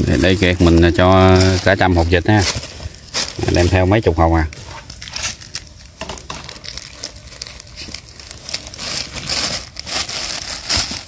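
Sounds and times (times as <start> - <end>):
plastic bags crinkling: 0.0 - 11.0.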